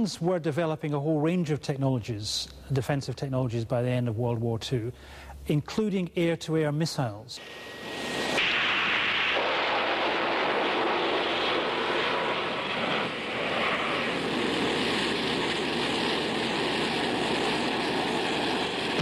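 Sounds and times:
aircraft engine roar: 7.3 - 19.0.

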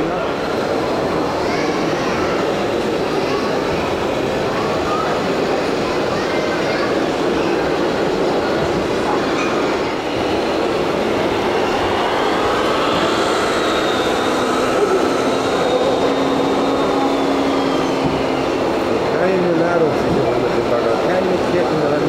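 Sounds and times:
busy hall din: 0.0 - 22.0
faint whine: 8.3 - 22.0.

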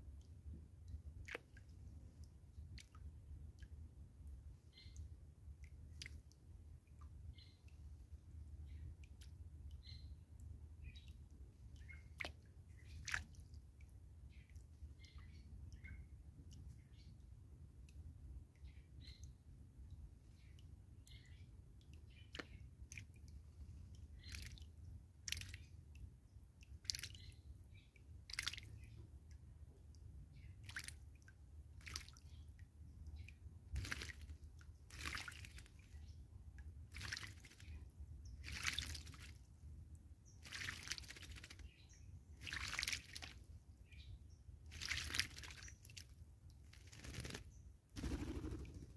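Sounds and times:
bird splashing in water: 12.1 - 13.3, 28.3 - 28.7, 30.6 - 31.0, 31.8 - 32.2, 33.8 - 35.8, 36.9 - 37.7, 38.4 - 39.4, 40.4 - 41.6, 42.4 - 43.4, 44.7 - 46.1, 46.7 - 48.9.

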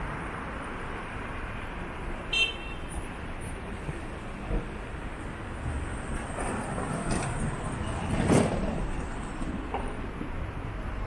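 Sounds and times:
city street traffic: 0.0 - 11.0.

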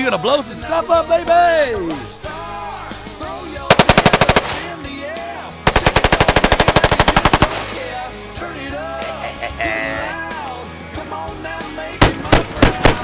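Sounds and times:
rifle firing rapid bursts: 3.7 - 4.8, 5.7 - 7.9, 12.0 - 13.0.

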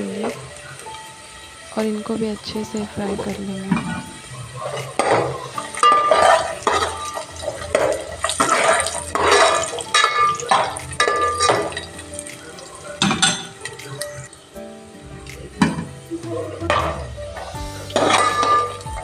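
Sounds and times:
nuts frying in oil: 0.0 - 19.0
metal spoon scraping metal pot: 5.1 - 11.7.

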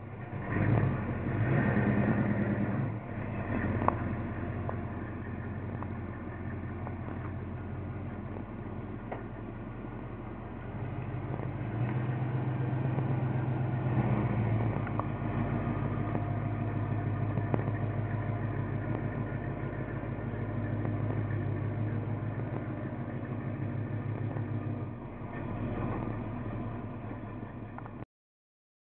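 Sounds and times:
truck engine exhaust rumble: 0.0 - 28.0.

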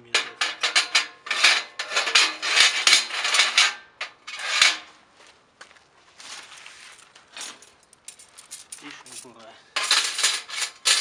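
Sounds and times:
metal grill legs clattering: 0.1 - 3.8.

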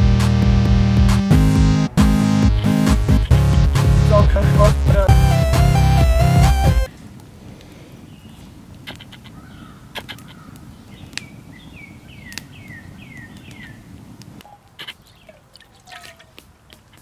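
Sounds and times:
campfire crackling: 0.0 - 17.0
bird chirping: 8.1 - 13.8, 14.5 - 17.0.

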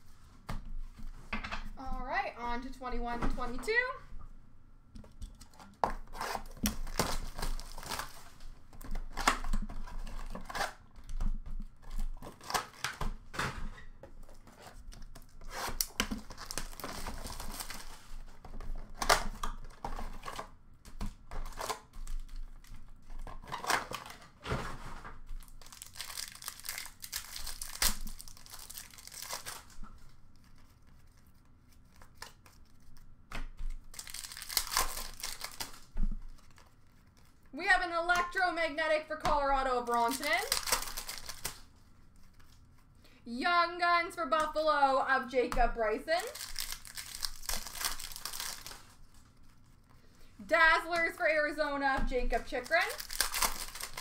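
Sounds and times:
card wrappers crinkling and tearing: 5.4 - 11.0, 11.6 - 13.2, 14.2 - 24.4, 25.3 - 37.5, 39.9 - 42.9, 45.8 - 54.0.

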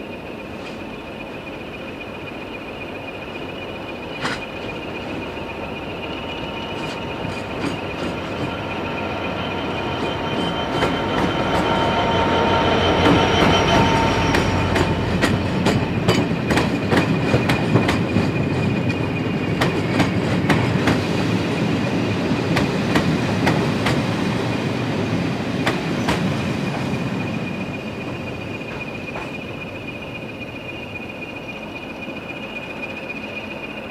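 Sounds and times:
diesel locomotive passing: 0.0 - 33.9
train wheels clicking over rail joints: 4.2 - 5.4, 6.6 - 8.7, 10.0 - 11.8, 12.9 - 21.2, 22.5 - 24.2, 25.6 - 30.0.

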